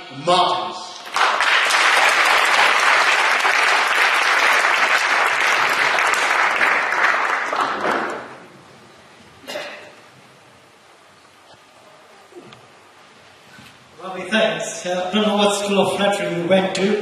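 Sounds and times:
audience applauding: 1.0 - 8.5.

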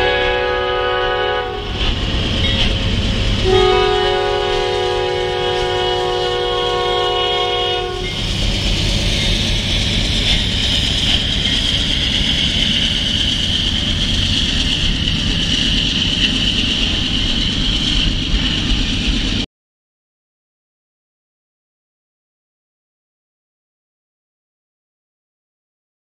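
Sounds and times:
locomotive air horn: 0.0 - 1.9, 3.4 - 8.3
locomotive rumble: 0.0 - 19.5
train wheels clickety-clack: 1.0 - 19.5
high-pitched wheel squeal: 2.4 - 19.3.

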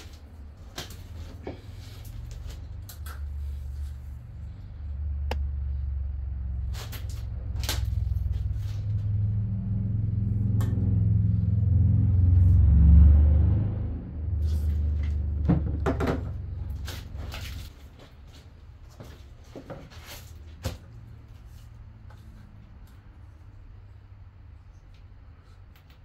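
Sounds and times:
low rumble: 1.6 - 17.7.

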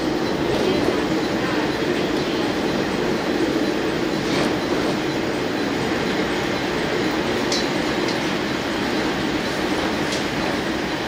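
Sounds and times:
railcar engine rumble: 0.0 - 11.0.

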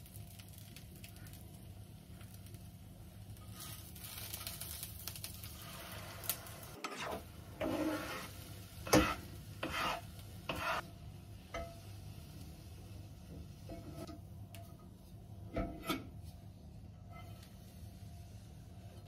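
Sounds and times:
food sizzling in frying pan: 0.0 - 14.1
wooden spatula scraping pan: 6.8 - 10.9, 13.5 - 14.2.

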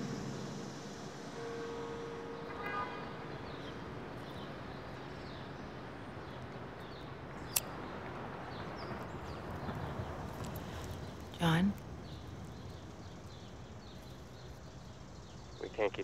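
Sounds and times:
traffic hum: 0.0 - 16.0
short horn tone: 1.3 - 3.8
small birds chirping: 3.3 - 16.0.

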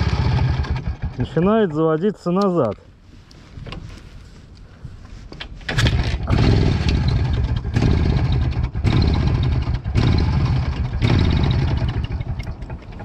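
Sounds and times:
two-stroke engine running unevenly: 0.0 - 1.4, 5.9 - 13.0.

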